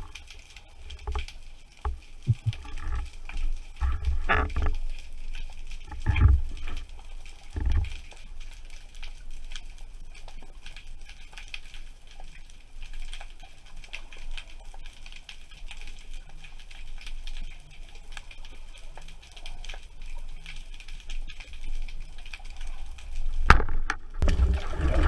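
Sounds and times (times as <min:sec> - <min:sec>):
underwater crackling clicks: 0:00.0 - 0:25.0
short low rumbles: 0:02.3 - 0:02.8.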